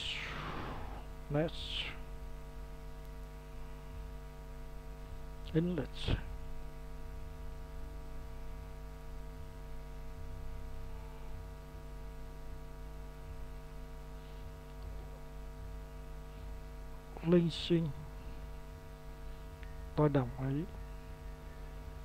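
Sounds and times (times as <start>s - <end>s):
steady electrical hum: 0.0s - 22.0s.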